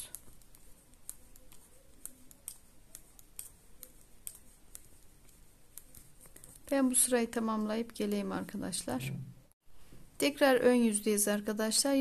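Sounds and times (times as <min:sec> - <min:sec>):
metal knitting needles clicking: 0:00.0 - 0:06.8.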